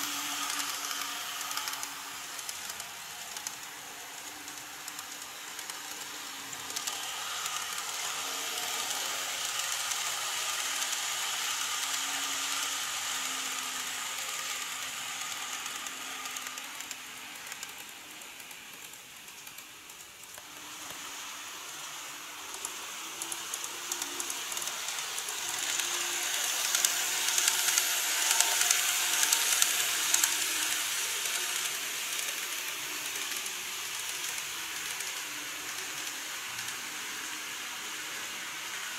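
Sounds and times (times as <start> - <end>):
faint motor whine: 0.0 - 38.9
model train wheels rattling on rails: 0.0 - 38.9
sharp clicks of train on track: 0.0 - 38.9.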